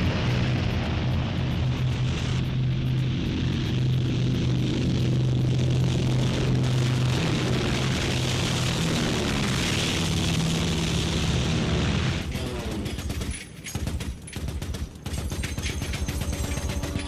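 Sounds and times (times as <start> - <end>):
bomber interior rumble: 0.0 - 12.3
bomber engines droning: 0.0 - 17.0
rapid machine-gun fire: 12.6 - 17.0.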